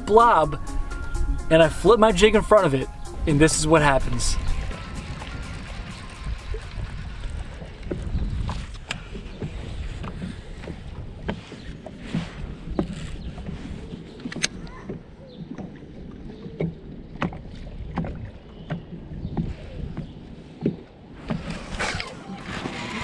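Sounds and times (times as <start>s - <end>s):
low rumble: 0.0s - 9.0s
small waves slapping boat hull: 4.0s - 23.0s.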